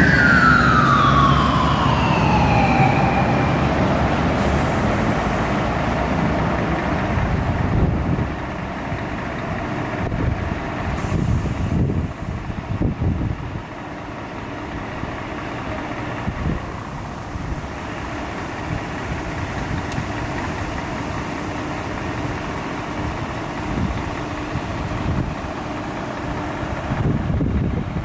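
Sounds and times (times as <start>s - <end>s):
vehicle engine idling: 2.5s - 28.0s.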